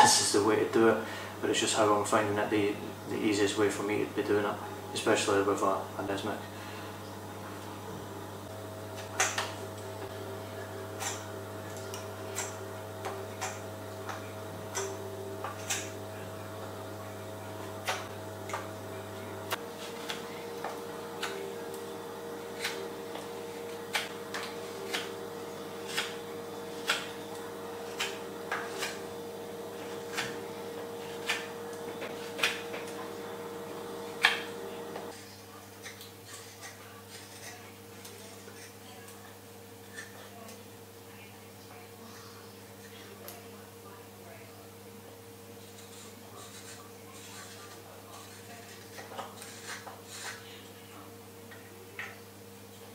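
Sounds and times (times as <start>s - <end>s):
faint steady hum: 0.0s - 36.0s
knife shaving wood: 10.5s - 35.2s, 35.8s - 38.8s, 45.6s - 50.4s.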